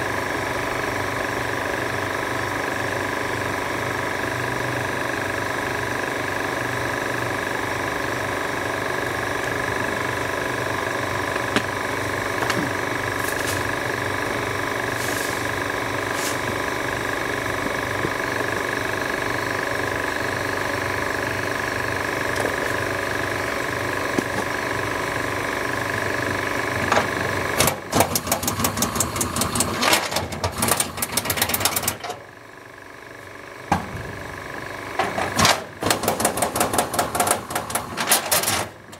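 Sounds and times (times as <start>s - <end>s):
steady mechanical hum: 0.0s - 38.9s
rapid clicking and rattling: 27.6s - 32.2s, 35.0s - 38.9s.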